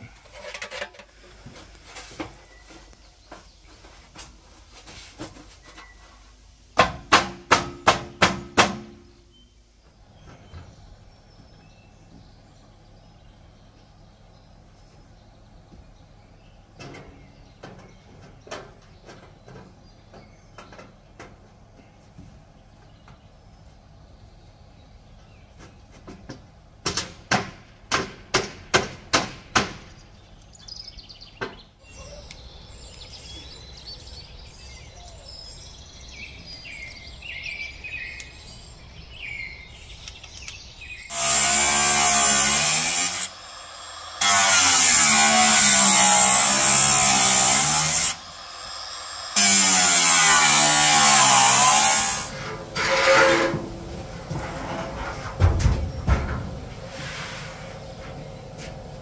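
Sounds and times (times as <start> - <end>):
sharp knocks: 6.8 - 9.0
birds chirping: 8.8 - 26.2, 29.5 - 52.2
power saw cutting: 41.1 - 53.6.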